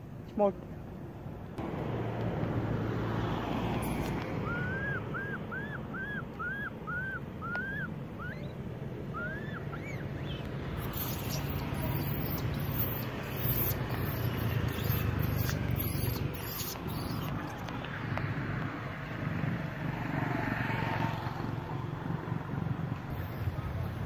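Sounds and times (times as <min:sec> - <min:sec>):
baby monkey crying: 0:10.7 - 0:17.5.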